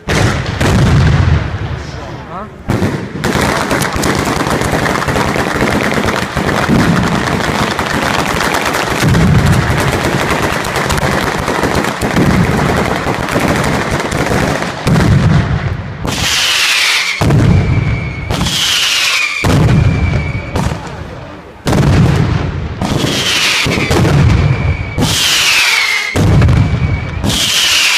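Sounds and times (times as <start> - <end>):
firecracker bangs: 0.0 - 1.7, 2.7 - 21.0, 21.6 - 27.9
heavy low firework booms: 0.0 - 27.6
firework whistle falling in pitch: 16.3 - 20.6, 23.4 - 27.9.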